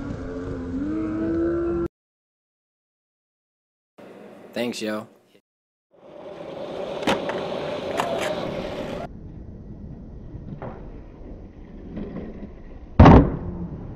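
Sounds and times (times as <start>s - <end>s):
skateboard wheels rolling: 6.0s - 13.9s
skateboard clacks: 6.8s - 9.0s.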